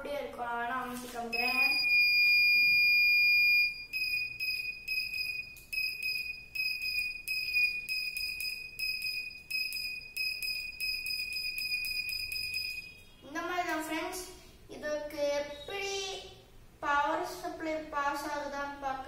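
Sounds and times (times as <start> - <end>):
buzzer beeping: 1.3 - 13.4.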